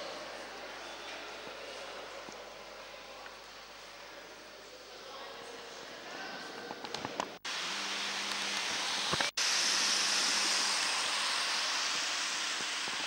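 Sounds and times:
steady rushing hiss: 7.4s - 13.0s.

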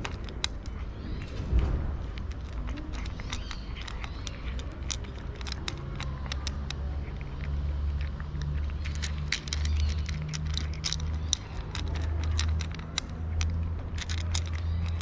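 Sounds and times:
cat crunching dry kibble: 0.0s - 15.0s.

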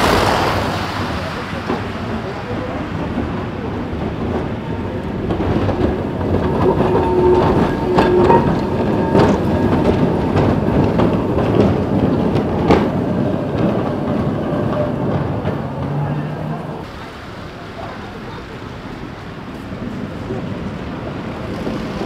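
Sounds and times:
rail joint clicks: 0.0s - 22.0s
tram wheels clattering on rails: 0.0s - 22.0s.

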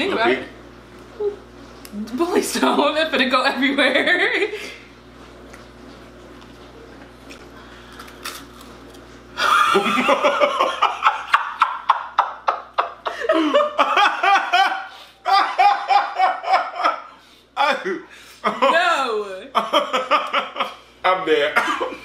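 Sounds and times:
low room hum: 0.0s - 22.0s
loud laughter: 9.4s - 17.1s.

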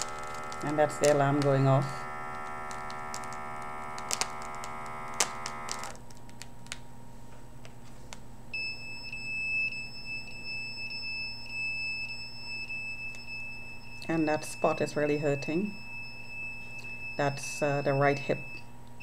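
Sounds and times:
steady buzzing alarm tone: 0.0s - 6.0s, 8.5s - 18.8s
high pulsing whine: 0.0s - 6.1s
low electrical hum: 0.0s - 19.0s.

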